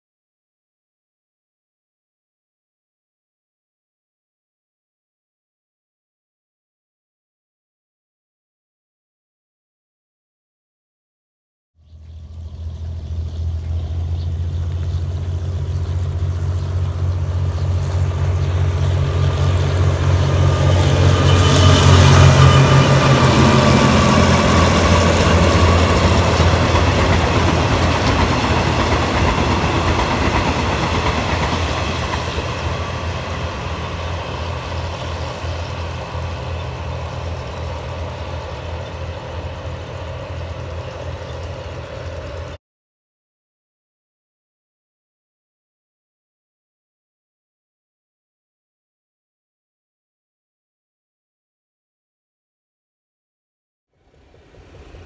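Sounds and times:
diesel locomotive passing: 11.8s - 42.6s, 54.0s - 55.0s
train wheels rumbling on rail: 12.0s - 42.6s.

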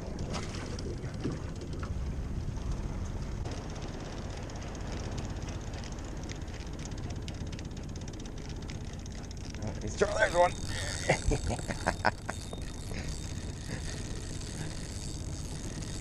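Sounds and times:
water lapping at a boat: 0.0s - 16.0s
wind rumble on microphone: 0.0s - 16.0s
fishing reel clicks: 4.2s - 16.0s.

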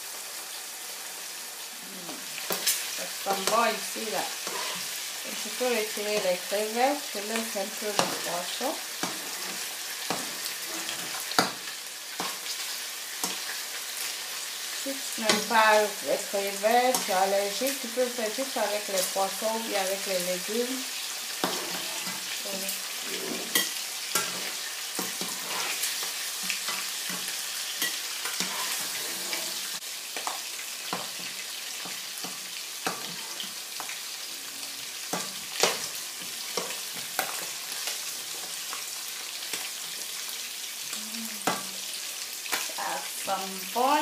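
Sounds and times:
seafood sizzling in oil: 0.0s - 44.0s
spatula tapping and scraping pan: 9.0s - 12.4s, 21.4s - 22.2s, 23.5s - 29.4s, 30.2s - 33.9s, 35.1s - 37.5s.

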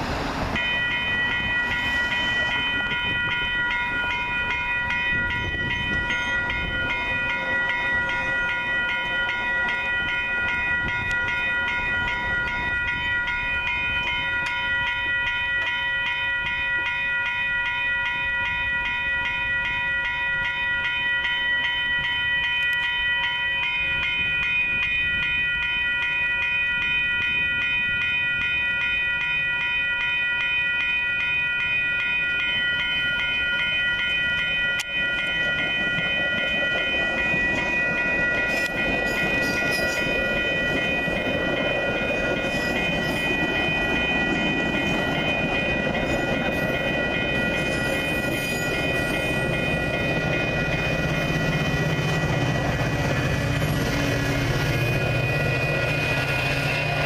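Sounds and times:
crossing warning bell ringing: 0.0s - 57.0s.

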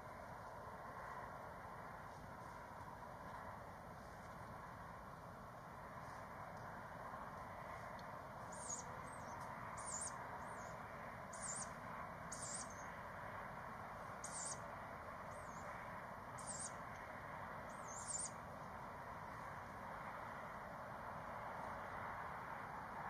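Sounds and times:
young owl wheezy begging calls: 8.5s - 10.7s, 11.3s - 11.7s, 12.3s - 12.8s, 14.2s - 14.7s, 16.4s - 16.8s, 17.7s - 18.4s.

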